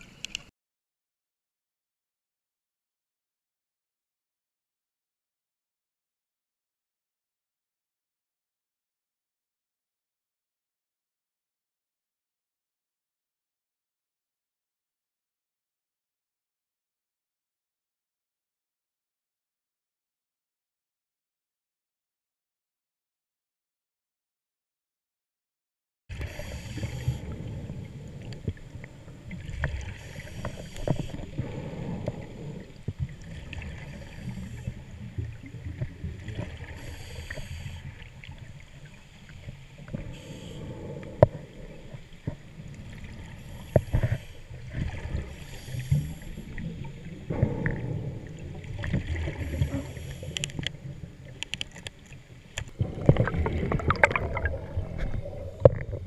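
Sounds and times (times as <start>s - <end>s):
muffled underwater rumble: 26.1s - 56.0s.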